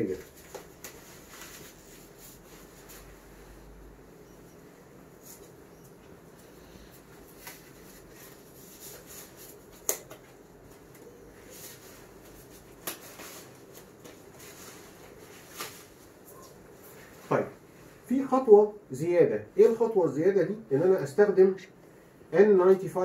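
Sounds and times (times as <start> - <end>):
gloves rustling and snapping: 7.2 - 11.2, 12.2 - 15.9.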